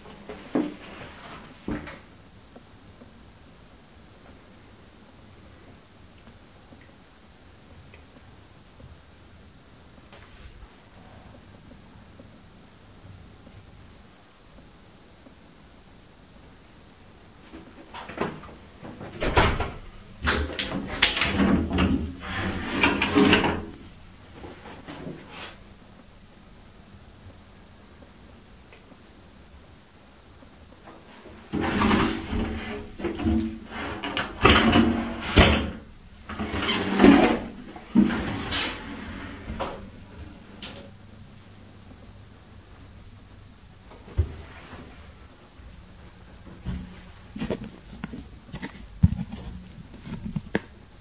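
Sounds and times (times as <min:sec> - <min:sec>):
glass shower door rattling: 0:19.2 - 0:23.7.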